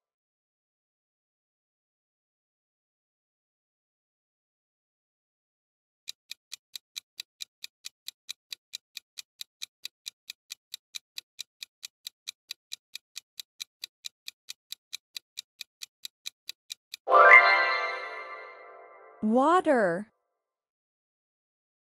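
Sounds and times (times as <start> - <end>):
timer ticking: 6.1 - 18.4
ringing chime: 17.1 - 18.8.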